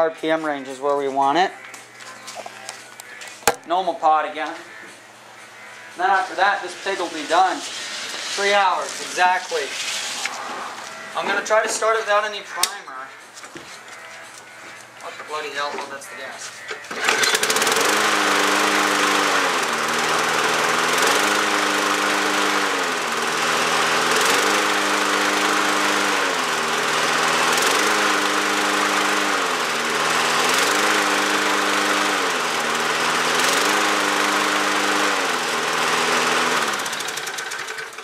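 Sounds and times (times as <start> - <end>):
lawn mower engine revving: 16.9 - 38.0.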